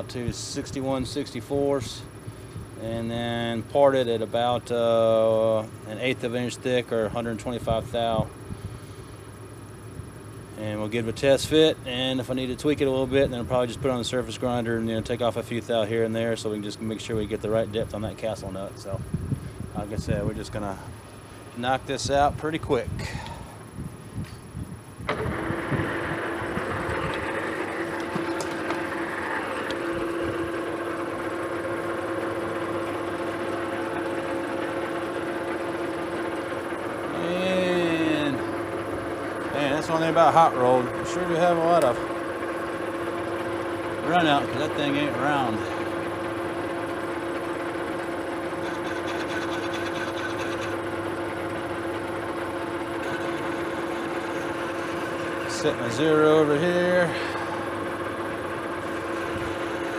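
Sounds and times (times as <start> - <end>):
metal lathe running: 25.1 - 59.9.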